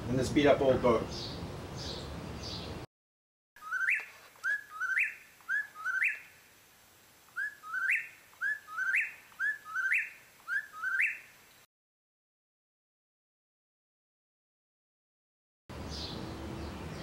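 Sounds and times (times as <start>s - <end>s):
bird whistling rising notes: 3.6s - 6.3s, 7.4s - 11.3s.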